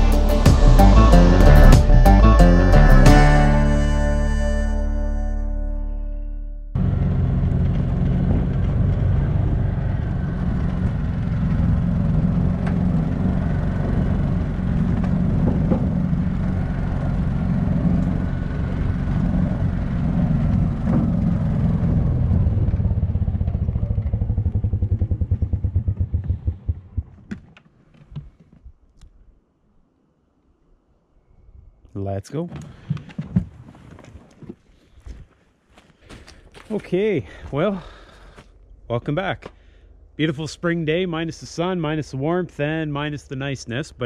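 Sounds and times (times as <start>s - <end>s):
utility vehicle engine running: 0.0s - 4.8s, 6.7s - 27.5s.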